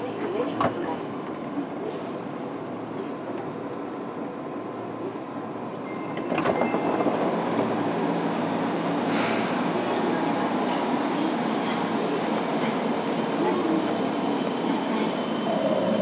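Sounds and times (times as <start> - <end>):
train wheels and motors rumbling: 10.8 - 16.0.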